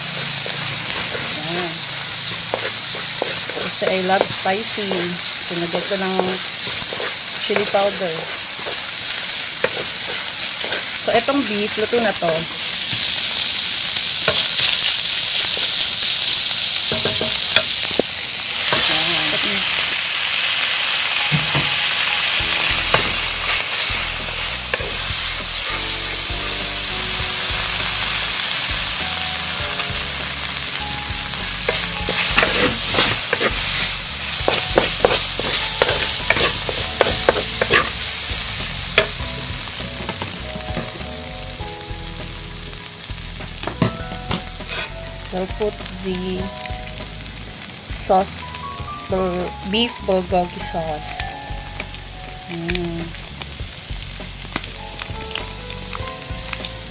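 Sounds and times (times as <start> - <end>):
spatula knocking and scraping wok: 0.0 - 4.8, 5.8 - 11.2, 22.4 - 26.1, 31.4 - 41.1, 43.3 - 45.0
meat sizzling in a wok: 0.0 - 56.9.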